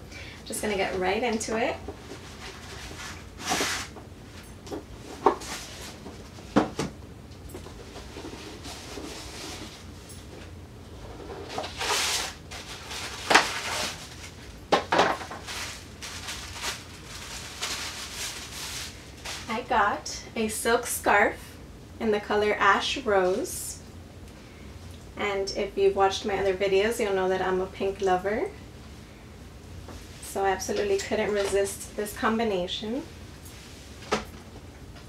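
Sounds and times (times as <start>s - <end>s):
paper rustling and crinkling: 1.8s - 6.6s, 7.6s - 19.5s
items set down knocking: 14.7s - 15.7s.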